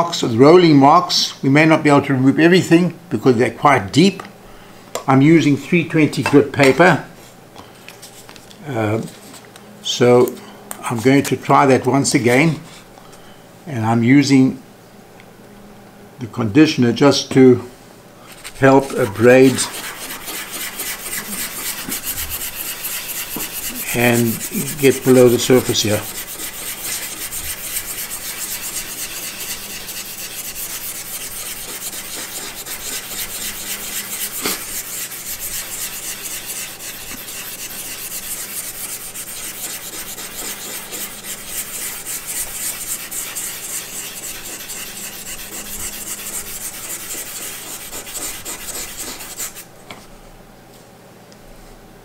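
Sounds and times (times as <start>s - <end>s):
sandpaper rubbing on metal: 18.4s - 49.6s.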